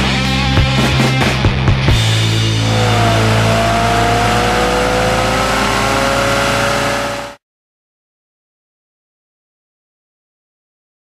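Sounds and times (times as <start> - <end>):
car engine at high revs: 2.2 - 7.4.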